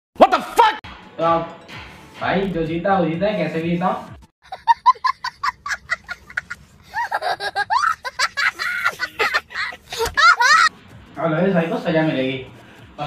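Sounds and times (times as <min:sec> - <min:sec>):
child laughing: 0:04.4 - 0:10.7.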